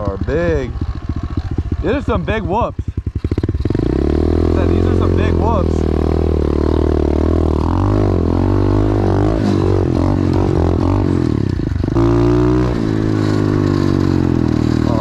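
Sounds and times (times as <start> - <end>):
motorbike engine revving: 0.0 - 15.0.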